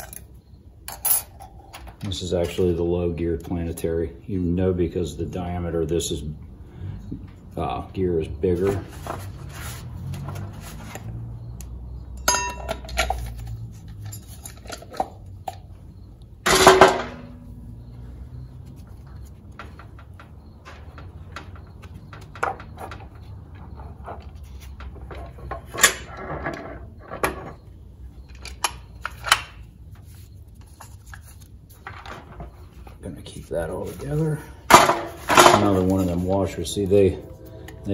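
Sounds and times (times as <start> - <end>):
metal parts clinking: 0.0 - 0.3, 0.9 - 2.1, 12.2 - 15.7
loud ringing metal clank: 12.2 - 12.8, 16.4 - 17.6.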